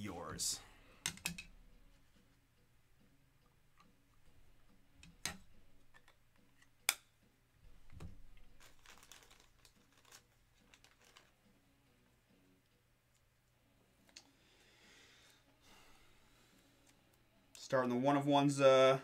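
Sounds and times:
packaging rustling: 0:08.0 - 0:11.4.

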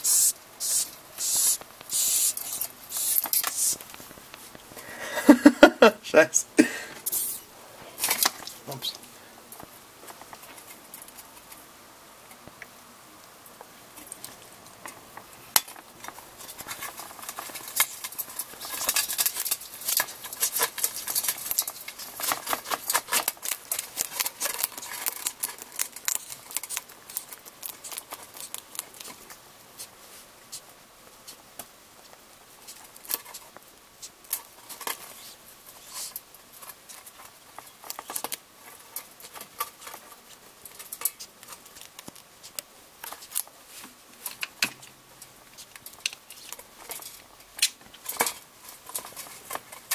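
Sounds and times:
hamster crunching insect shell: 0:00.0 - 0:04.5, 0:14.0 - 0:30.0, 0:31.2 - 0:43.6.

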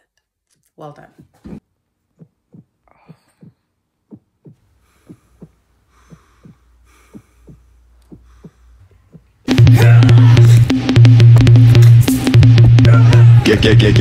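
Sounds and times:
heartbeat thumps: 0:02.1 - 0:14.0
electronic music with heavy bass: 0:09.5 - 0:14.0.

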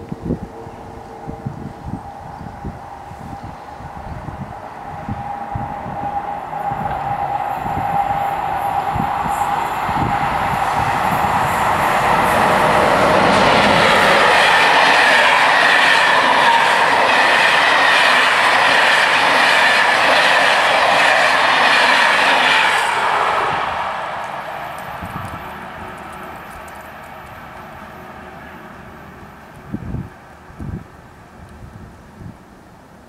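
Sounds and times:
train wheels clattering on rails: 0:06.6 - 0:23.0.

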